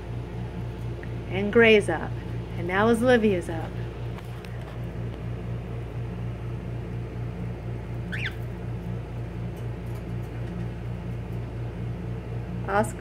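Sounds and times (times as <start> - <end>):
cockatiel chirp: 8.1 - 8.4.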